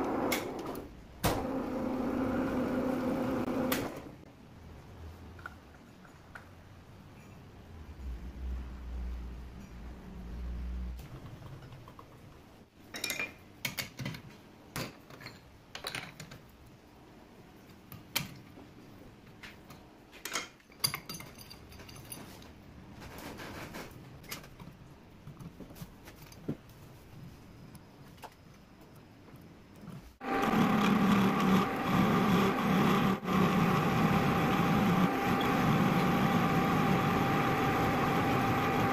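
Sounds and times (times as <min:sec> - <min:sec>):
metallic clinks and knocks: 0:20.3 - 0:22.5.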